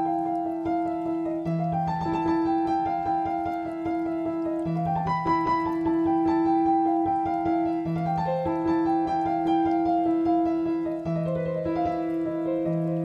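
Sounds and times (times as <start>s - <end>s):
piano melody: 0.0s - 13.0s.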